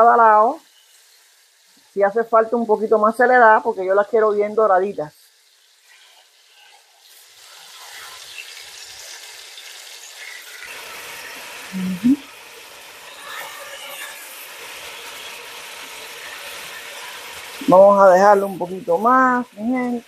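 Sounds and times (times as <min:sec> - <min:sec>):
chicken sizzling in oil: 0:00.0 - 0:20.0
short vocal hum: 0:11.7 - 0:12.2.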